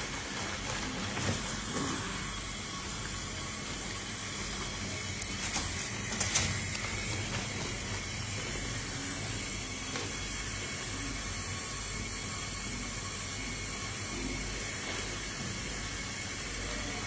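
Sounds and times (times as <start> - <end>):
steady hum and hiss: 0.0 - 17.0
clicks and plastic rustles: 5.2 - 8.1.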